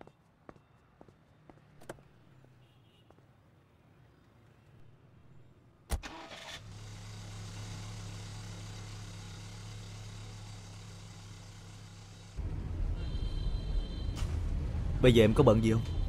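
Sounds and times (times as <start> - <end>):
car engine starting: 6.0 - 12.8
car engine humming: 6.1 - 13.2.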